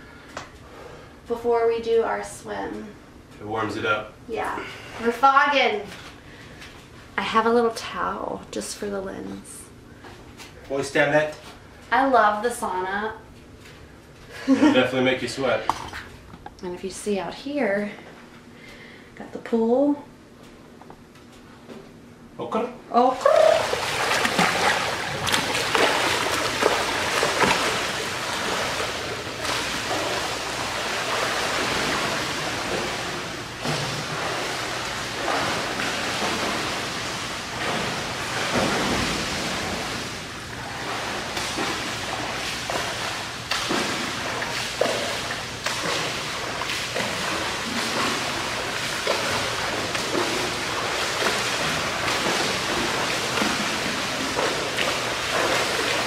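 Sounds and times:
swimmer splashing in pool water: 0:23.2 - 0:56.0.

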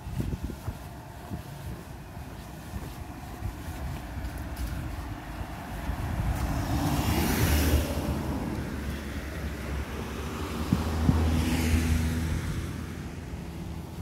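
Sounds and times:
steady low rumble: 0:00.0 - 0:11.3
car passing: 0:00.0 - 0:14.0.

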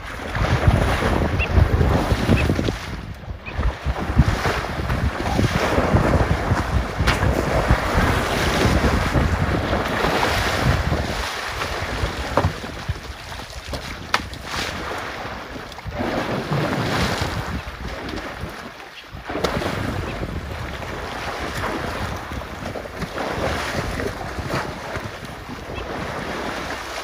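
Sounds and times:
water sloshing and splashing: 0:00.0 - 0:27.0
wind buffeting microphone: 0:00.0 - 0:27.0
elephant splashing in river: 0:03.8 - 0:27.0.

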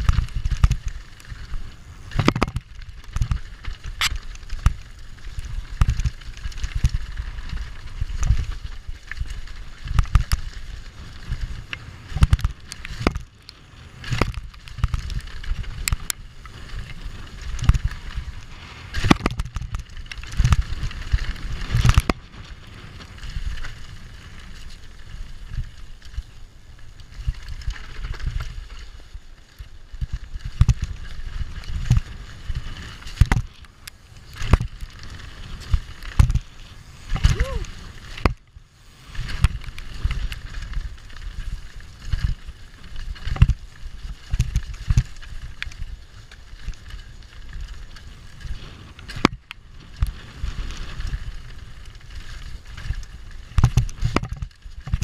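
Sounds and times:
wind on microphone: 0:00.0 - 0:13.3, 0:34.2 - 0:45.8, 0:46.8 - 0:55.0
bike knocking on bumps: 0:00.0 - 0:13.4, 0:14.0 - 0:23.9, 0:30.0 - 0:33.7, 0:34.3 - 0:38.4, 0:39.2 - 0:48.0, 0:49.0 - 0:55.0
bike rattling: 0:00.0 - 0:55.0
bike tyres rolling over dirt: 0:00.0 - 0:55.0.

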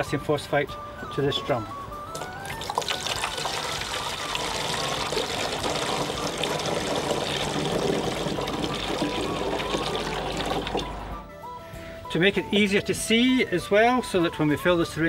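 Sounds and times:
liquid pouring through funnel: 0:02.1 - 0:11.2.

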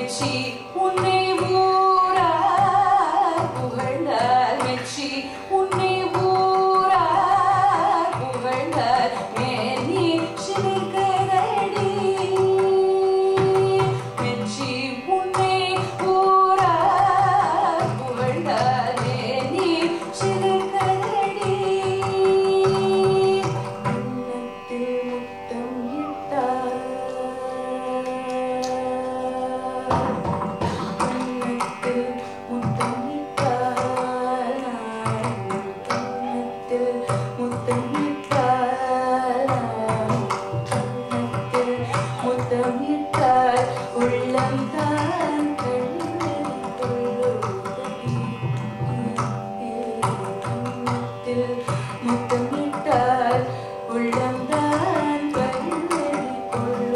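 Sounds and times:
woman singing: 0:00.0 - 0:56.9
hand drum strokes: 0:29.9 - 0:49.3.

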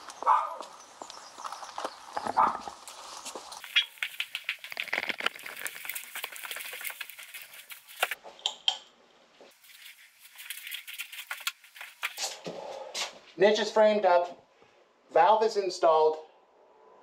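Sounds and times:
clothing rustle: 0:01.9 - 0:08.2, 0:09.5 - 0:12.4.

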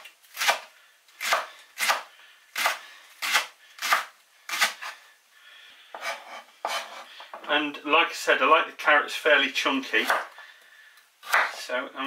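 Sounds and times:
knife chopping on cutting board: 0:06.0 - 0:07.0, 0:11.2 - 0:11.6.

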